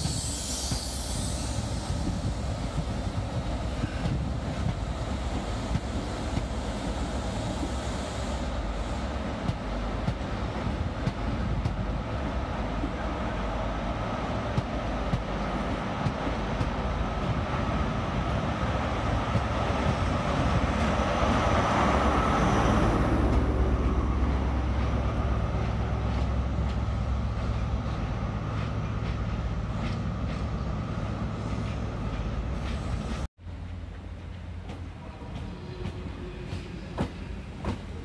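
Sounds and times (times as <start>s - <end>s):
train coaches rumbling by: 0.0s - 38.0s.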